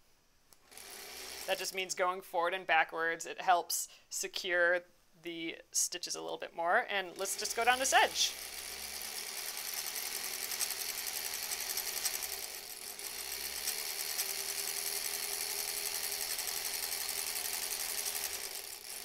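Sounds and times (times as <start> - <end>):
sewing machine running: 0.6 - 1.8, 7.1 - 19.0.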